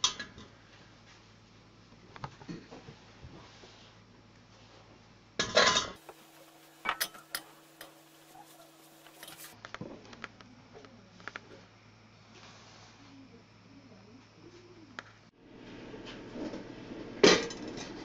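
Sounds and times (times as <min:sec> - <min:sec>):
metal pot clattering and clinking: 0:05.4 - 0:09.6.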